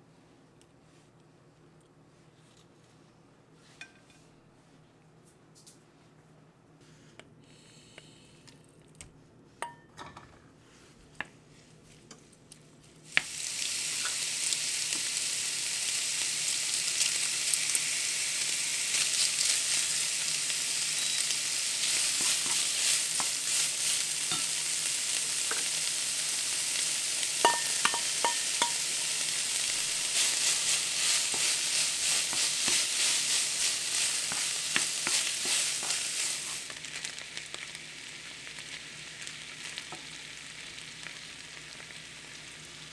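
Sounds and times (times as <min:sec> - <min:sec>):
pork sizzling in a frying pan: 0:13.0 - 0:42.9.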